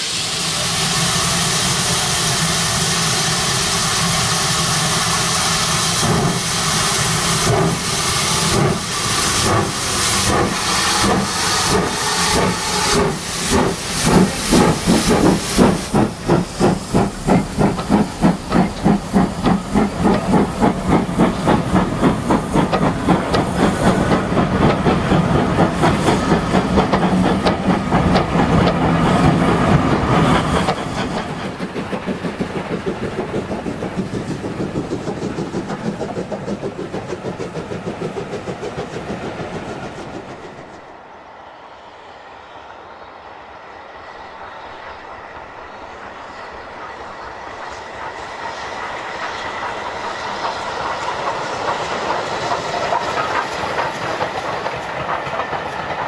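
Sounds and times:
locomotive exhaust chuffs: 0.0s - 40.9s
steam hissing: 0.0s - 56.0s.

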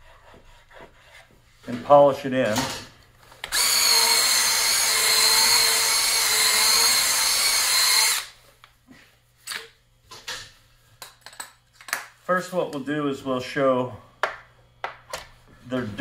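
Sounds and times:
power drill brush whining: 3.5s - 8.4s.

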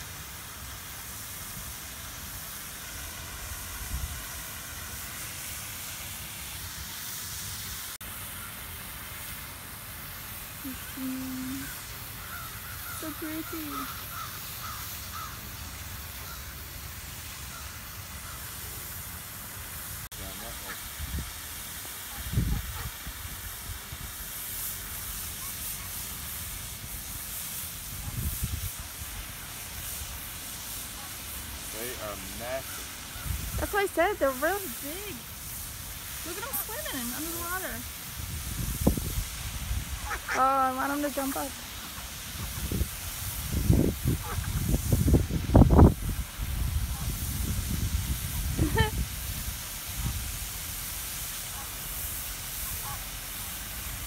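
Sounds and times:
fountain water jet splashing: 0.0s - 54.0s
open-air ambience hiss: 0.0s - 54.0s
wind rumbling on microphone: 3.3s - 4.3s, 21.0s - 21.4s, 22.1s - 24.1s, 27.8s - 28.8s, 33.2s - 33.7s, 36.3s - 40.2s, 42.3s - 50.5s.

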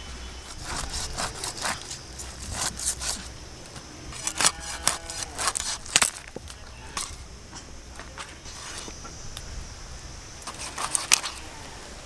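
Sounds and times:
blade scraping through fish: 0.4s - 3.3s.

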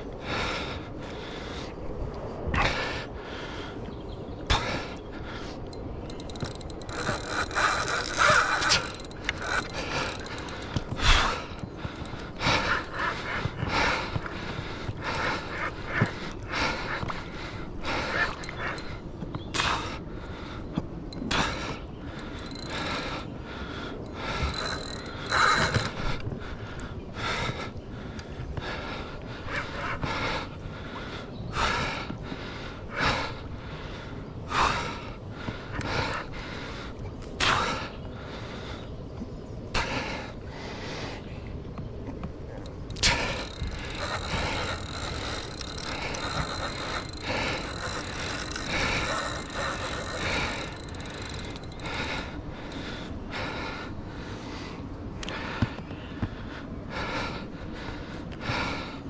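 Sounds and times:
heavy gasping breaths: 4.5s - 38.9s, 42.5s - 59.0s
fishing reel whirring: 5.9s - 11.3s, 22.2s - 23.3s, 24.0s - 26.0s, 42.7s - 52.8s.

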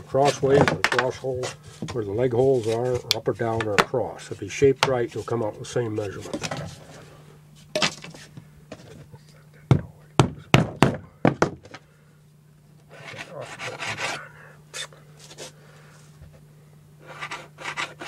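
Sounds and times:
steady low hum: 0.0s - 18.0s
scraping rub: 1.3s - 3.1s, 12.9s - 15.6s, 17.0s - 18.0s
hammer knocking on wood: 9.7s - 11.7s.

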